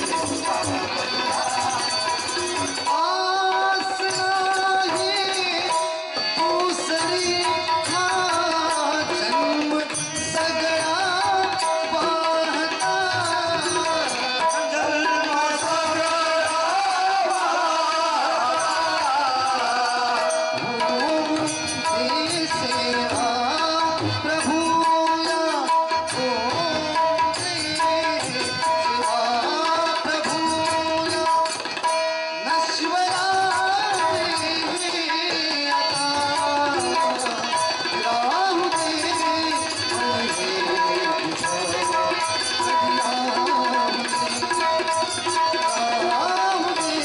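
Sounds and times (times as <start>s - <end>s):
harmonium: 0.0s - 47.0s
man singing: 0.0s - 47.0s
tabla strokes: 0.0s - 47.0s.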